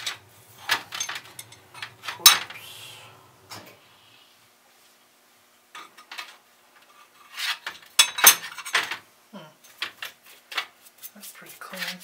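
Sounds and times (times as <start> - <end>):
small metal parts clinking: 0.0 - 2.6.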